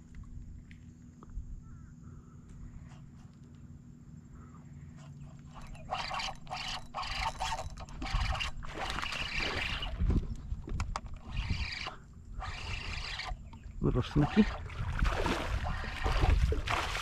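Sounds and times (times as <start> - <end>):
fishing reel drag buzzing: 5.0 - 14.7, 15.6 - 16.4
fish splashing: 14.2 - 17.0.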